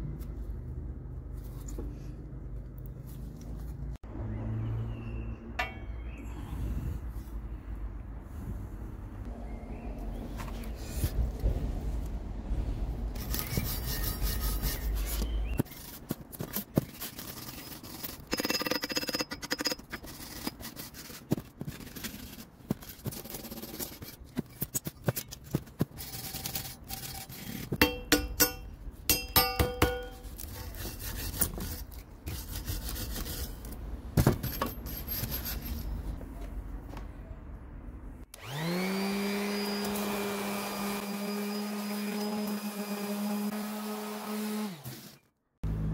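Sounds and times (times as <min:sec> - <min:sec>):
steel clinking and ringing: 0:05.6 - 0:06.2, 0:18.3 - 0:20.1, 0:27.8 - 0:30.3
wire brush scrubbing steel: 0:13.2 - 0:24.8.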